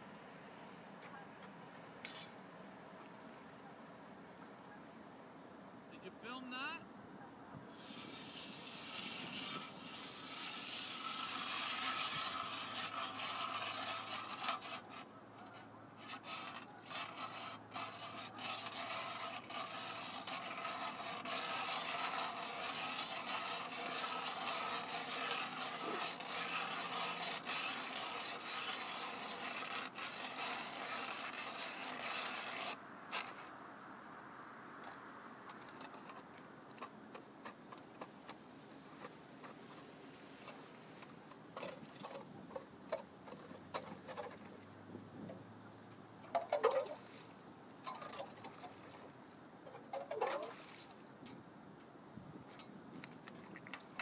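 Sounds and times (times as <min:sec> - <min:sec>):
ice auger drilling through ice: 0:07.7 - 0:33.5, 0:46.3 - 0:47.1, 0:49.9 - 0:50.7.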